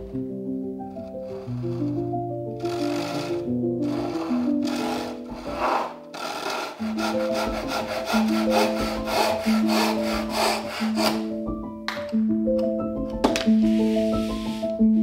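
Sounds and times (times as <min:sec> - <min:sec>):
hand saw cutting wood: 0:02.6 - 0:11.3.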